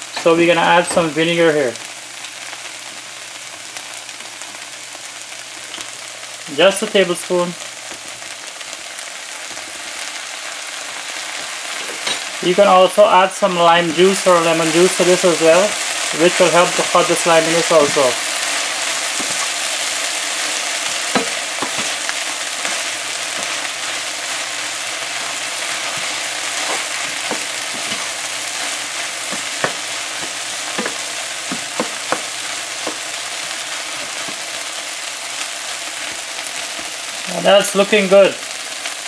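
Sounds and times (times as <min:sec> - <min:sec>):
food sizzling in a frying pan: 0:00.0 - 0:39.0
spoon scraping a pan: 0:20.4 - 0:34.4.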